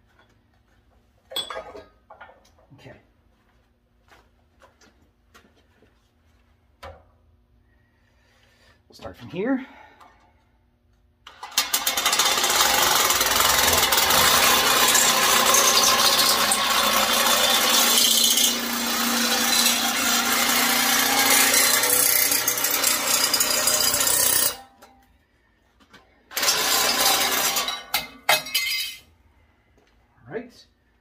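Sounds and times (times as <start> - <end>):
drill motor: 11.3 - 24.6, 26.3 - 27.7.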